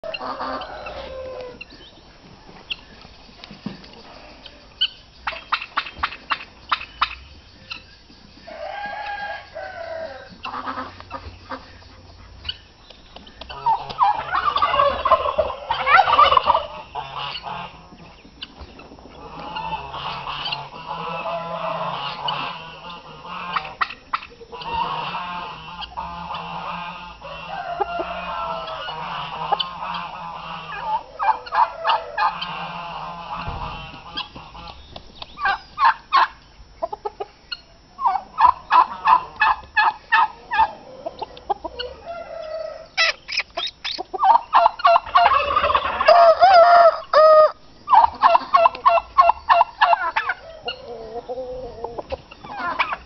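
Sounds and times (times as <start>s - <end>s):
rooster crowing: 0.0s - 1.7s, 8.4s - 10.9s, 13.6s - 17.3s, 19.2s - 23.7s, 24.6s - 34.0s, 40.2s - 43.2s, 44.9s - 48.6s
fowl calls: 0.0s - 53.0s.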